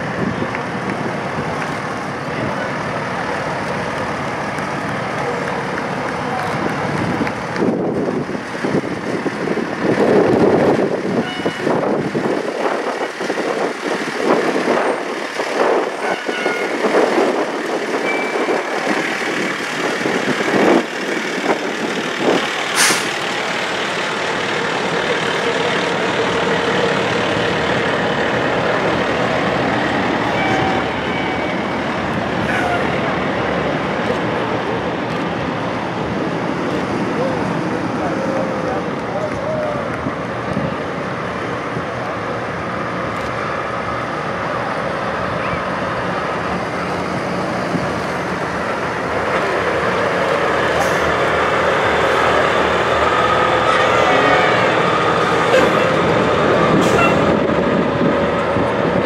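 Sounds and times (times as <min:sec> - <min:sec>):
diesel engines running: 0:00.0 - 0:59.0
air brake hiss: 0:22.7 - 0:23.2.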